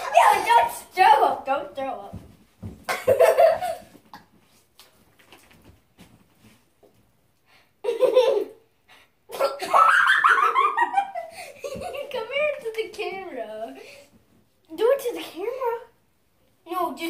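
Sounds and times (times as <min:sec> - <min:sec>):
children laughing: 0:02.9 - 0:03.9, 0:09.3 - 0:12.3.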